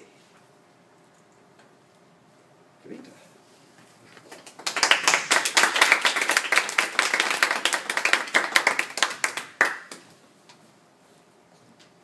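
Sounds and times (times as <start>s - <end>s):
people clapping: 4.2s - 10.2s.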